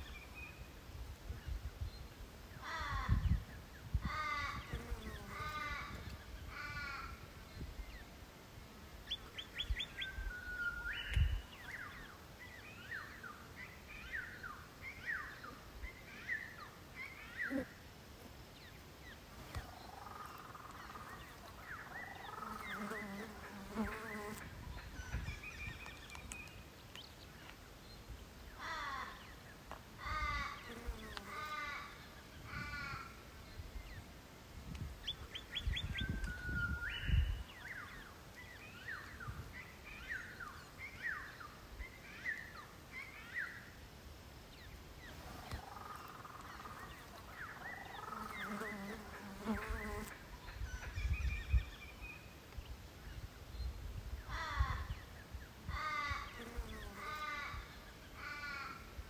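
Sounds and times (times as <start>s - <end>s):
crow cawing: 28.6s - 29.2s.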